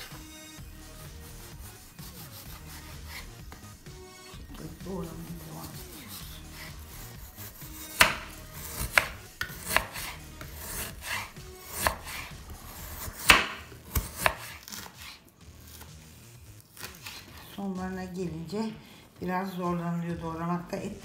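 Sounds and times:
knife sawing through frozen meat: 0.0 - 3.8, 4.6 - 16.0, 16.7 - 17.6.

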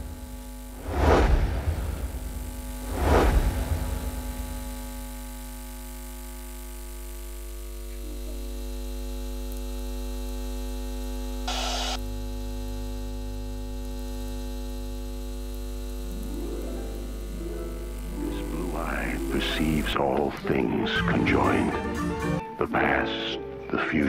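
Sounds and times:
electronic hum drone: 0.0 - 22.4
swooshing rush: 0.8 - 4.6.

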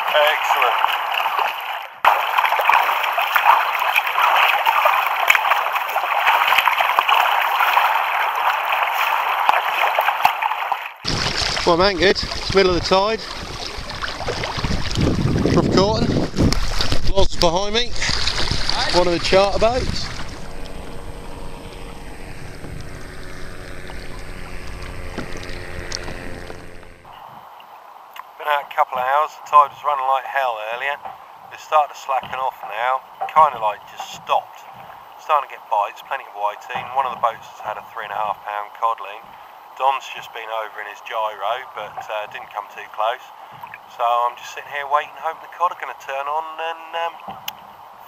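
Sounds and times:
paddle splashes: 0.0 - 27.2, 36.0 - 43.9
water rushing along hull: 0.0 - 48.0
wind rumbling on microphone: 11.0 - 27.5
faint steady hum: 11.2 - 48.0.

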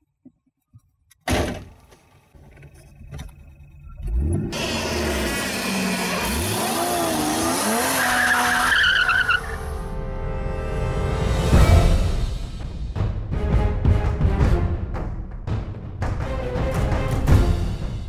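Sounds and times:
car engine revving: 4.0 - 11.3
tyres squealing: 5.7 - 9.6.

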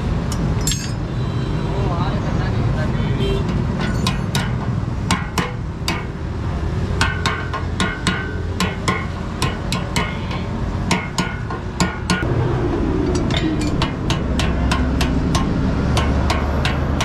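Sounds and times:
hammer striking metal: 0.3 - 1.0, 3.5 - 6.2, 7.0 - 12.3, 13.1 - 17.0
low background rumble: 3.4 - 17.0.

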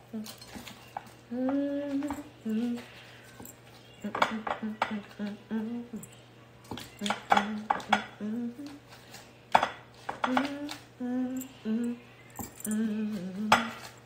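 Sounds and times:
woman humming: 0.0 - 0.5, 1.3 - 3.0, 4.0 - 6.2, 6.9 - 8.9, 10.2 - 13.7.

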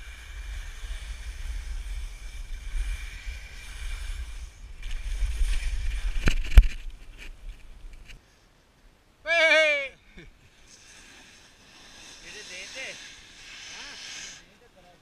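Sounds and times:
skis hissing over snow: 0.0 - 7.2, 10.4 - 15.0
wind buffeting camera microphone: 0.0 - 8.2.

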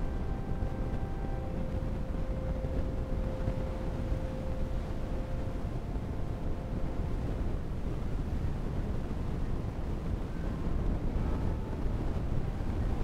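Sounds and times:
faint held tone: 0.0 - 8.7
low rumbling room noise: 0.0 - 13.0.

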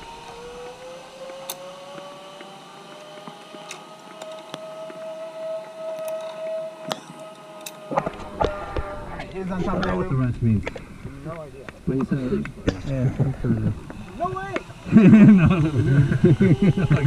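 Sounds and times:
zipline pulleys whining on cable: 0.0 - 9.5, 13.3 - 17.0
carabiner metal clicks: 6.0 - 7.8.

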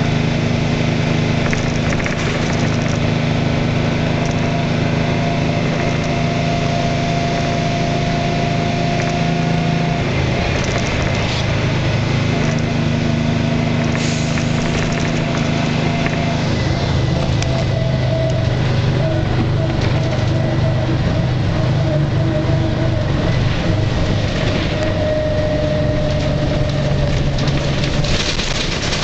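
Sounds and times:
bus engine drone: 0.0 - 29.0
whine: 0.0 - 29.0.

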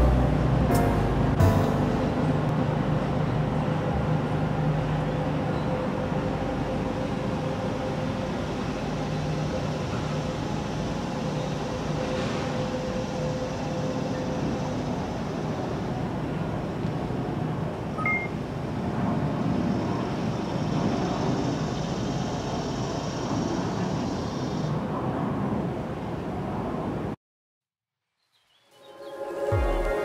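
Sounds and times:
street traffic rumble: 0.0 - 27.2.

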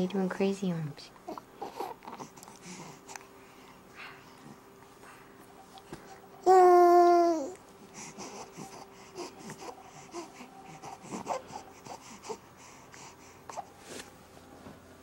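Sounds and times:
baby grunts and breaths: 1.2 - 4.6, 6.9 - 13.8.

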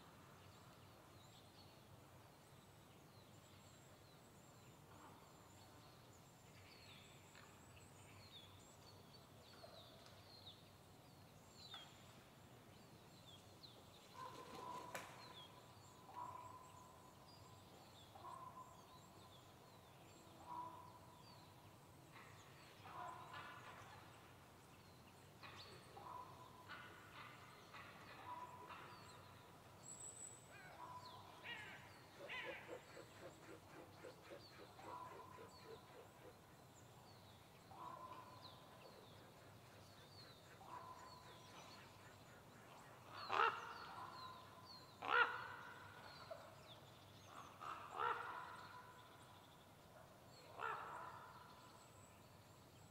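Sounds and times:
crows cawing: 47.6 - 48.4.

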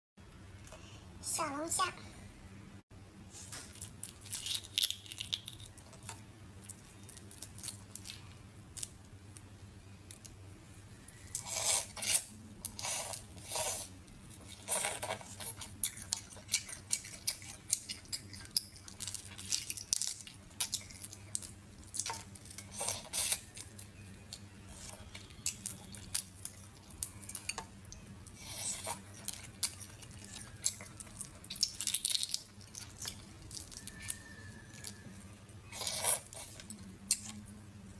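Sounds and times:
crayfish shells cracking: 3.8 - 5.8, 18.1 - 22.7, 30.4 - 34.9.

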